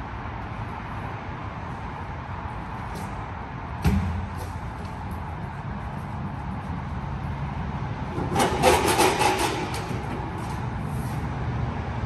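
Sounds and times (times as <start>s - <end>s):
steady low hum: 0.0s - 12.0s
rapid rattling and scraping: 4.4s - 11.2s.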